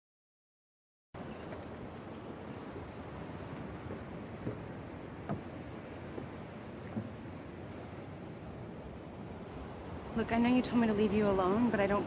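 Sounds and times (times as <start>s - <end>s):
insects chirping: 2.5s - 12.0s
soft thumps: 3.8s - 5.5s.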